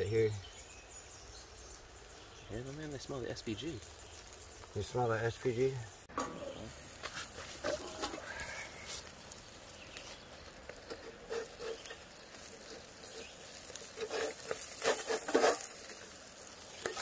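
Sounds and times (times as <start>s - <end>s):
fish crackling over charcoal: 0.0s - 17.0s
metal spatulas scraping grate: 10.8s - 16.1s.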